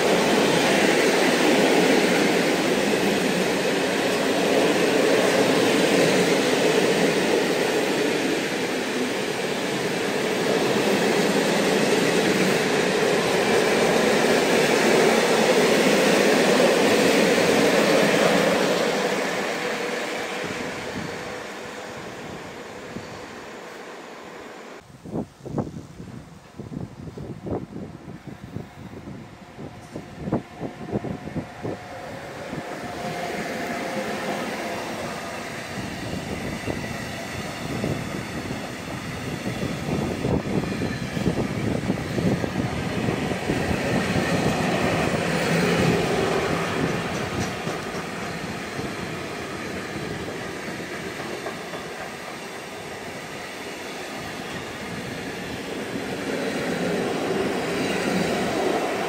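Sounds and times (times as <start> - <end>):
train wheels rumbling: 0.0 - 24.8, 28.8 - 59.0
electric locomotive passing: 0.0 - 59.0
clickety-clack over rail joints: 44.2 - 52.5.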